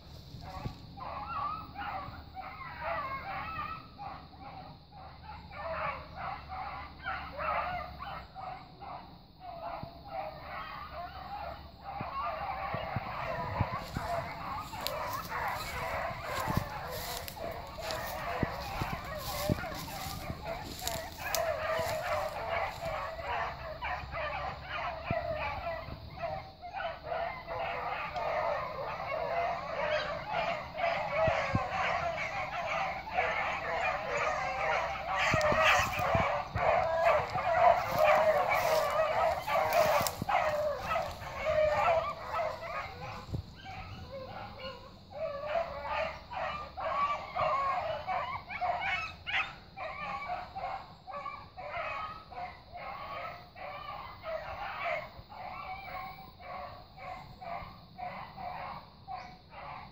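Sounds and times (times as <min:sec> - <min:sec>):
beagles baying: 0:00.0 - 0:59.9.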